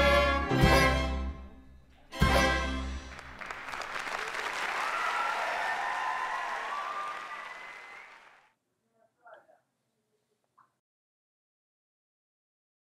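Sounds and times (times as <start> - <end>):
audience applauding: 2.9 - 8.5.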